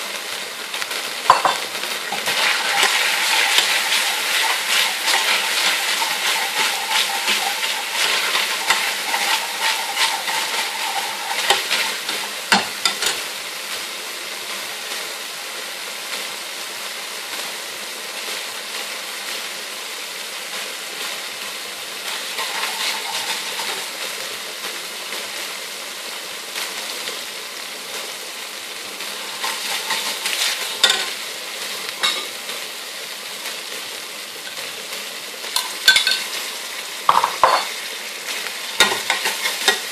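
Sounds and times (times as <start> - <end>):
oil sizzling in a pan: 0.0 - 39.9
metal spoon stirring and scraping: 1.3 - 13.2, 22.1 - 24.0, 29.2 - 31.2, 32.0 - 32.3, 35.6 - 36.2, 38.8 - 39.9
spoon knocking on pan: 1.3 - 13.2, 30.8 - 31.1, 35.6 - 36.3, 37.1 - 37.7, 38.8 - 39.8.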